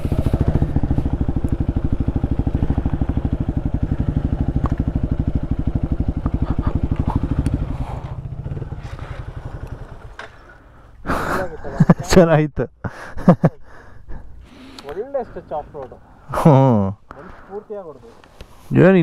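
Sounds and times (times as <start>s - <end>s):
motorcycle engine idling: 0.0s - 11.0s.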